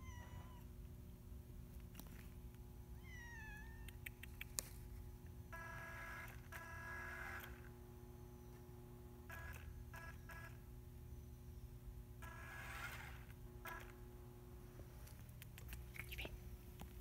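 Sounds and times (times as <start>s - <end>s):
cat meowing: 0.0s - 0.7s, 3.0s - 4.0s
constant low hum: 0.0s - 17.0s
sharp clicks: 3.8s - 4.7s, 15.3s - 16.2s
steady multi-tone whine: 4.6s - 17.0s.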